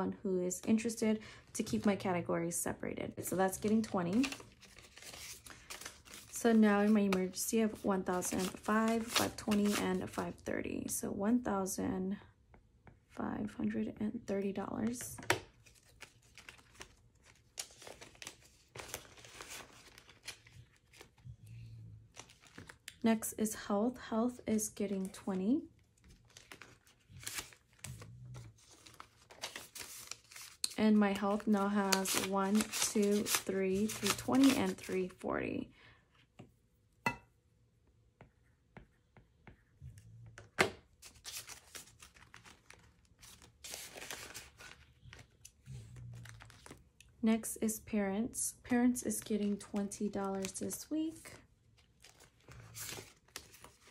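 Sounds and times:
paper bills and plastic rustling: 0:03.4 - 0:10.1, 0:14.8 - 0:21.2, 0:22.1 - 0:23.0, 0:26.0 - 0:35.2, 0:41.0 - 0:46.8, 0:49.0 - 0:53.9
paper and plastic rustling: 0:03.5 - 0:09.9, 0:22.2 - 0:22.8, 0:41.0 - 0:45.5.

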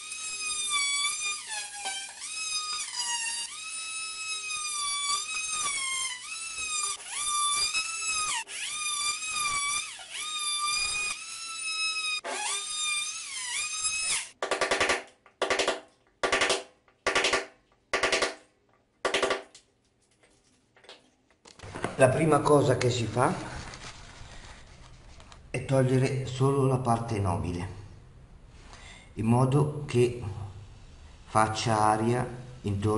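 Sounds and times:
oscillating multi-tool cutting wood: 0:00.0 - 0:14.4.

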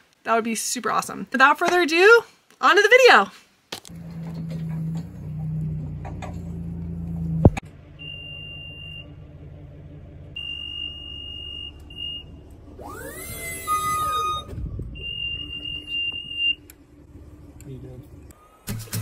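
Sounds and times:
motor hum: 0:03.9 - 0:18.7
high-pitched alarm beeps: 0:10.4 - 0:16.6.

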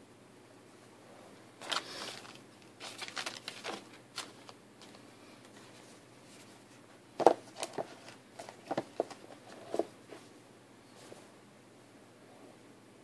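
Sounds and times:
cardboard rustling and scraping: 0:01.6 - 0:05.0, 0:07.2 - 0:10.3.

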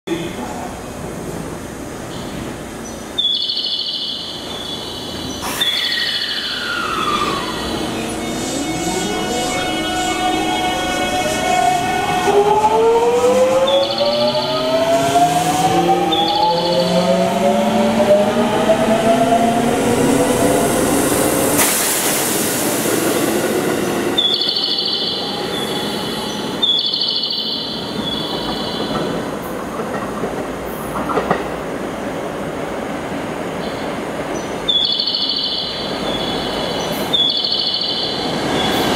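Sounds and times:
high chirping tones: 0:03.2 - 0:12.1, 0:23.8 - 0:28.9, 0:34.7 - 0:38.4
high-pitched squeal: 0:04.8 - 0:28.9
burst of hiss: 0:05.4 - 0:06.2, 0:21.6 - 0:23.2.

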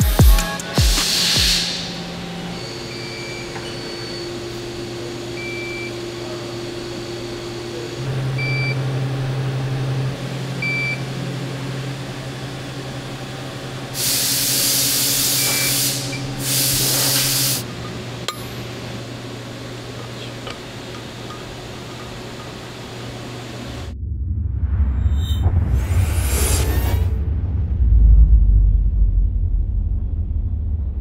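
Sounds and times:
machine humming: 0:00.0 - 0:24.1
loud bursts of hiss: 0:00.8 - 0:02.0, 0:14.0 - 0:17.6
hum tone: 0:01.1 - 0:16.5, 0:17.3 - 0:31.0.

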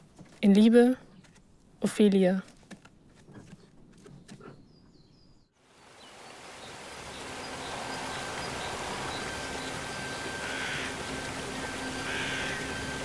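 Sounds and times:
outdoor hiss: 0:05.6 - 0:13.0
thin high tone: 0:07.4 - 0:13.0.

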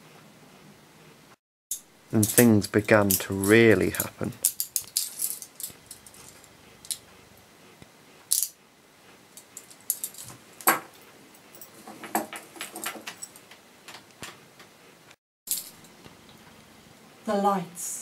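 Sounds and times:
handcuffs clicking and jangling: 0:02.2 - 0:07.0, 0:08.3 - 0:08.6, 0:09.4 - 0:13.5.

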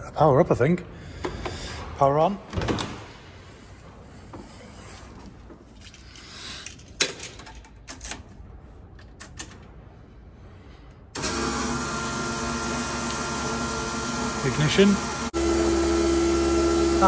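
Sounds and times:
keys and switches rattling: 0:05.6 - 0:09.8
electric fuel pump whine: 0:11.2 - 0:17.0.

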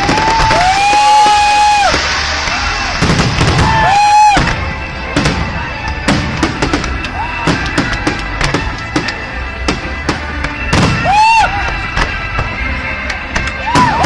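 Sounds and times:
fireworks bangs and crackles: 0:00.0 - 0:14.0
music with drum beat: 0:05.2 - 0:12.7.

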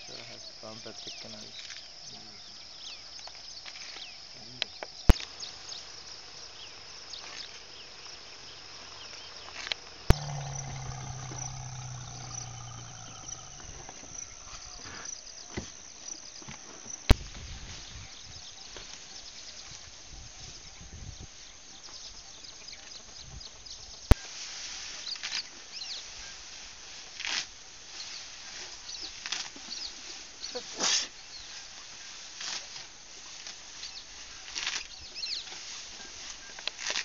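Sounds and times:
insect chorus: 0:00.0 - 0:37.0
low hum: 0:10.1 - 0:14.6.

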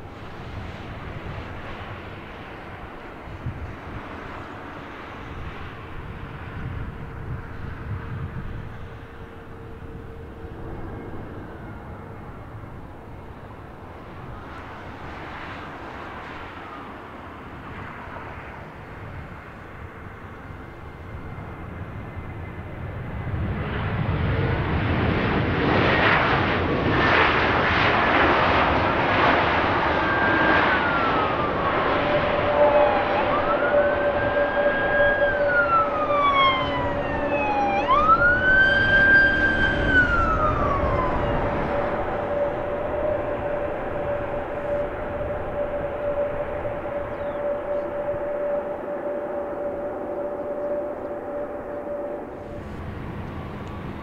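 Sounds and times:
jet airliner engine noise: 0:00.0 - 0:54.0
siren wailing: 0:06.9 - 0:15.1, 0:28.6 - 0:54.0.

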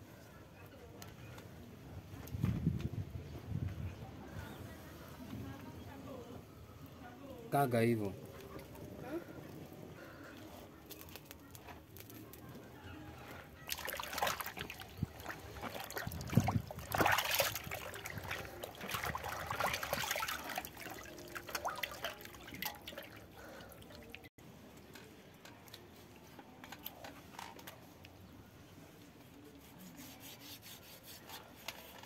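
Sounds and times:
water splashing in a steel basin: 0:13.6 - 0:24.3.

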